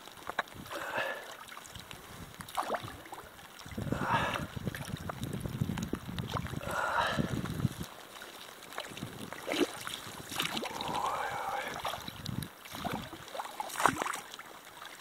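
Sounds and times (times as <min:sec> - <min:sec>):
pole paddling through water: 0:00.0 - 0:15.0
wind on microphone: 0:02.0 - 0:07.9, 0:08.8 - 0:13.2.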